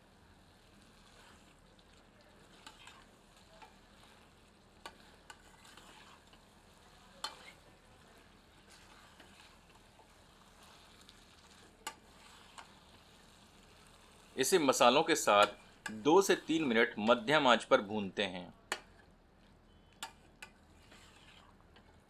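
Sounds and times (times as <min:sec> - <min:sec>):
stirring food in a pot: 0:00.0 - 0:17.2, 0:18.4 - 0:22.0
light sizzling: 0:00.0 - 0:22.0
ladle clicking against pot: 0:18.7 - 0:19.0.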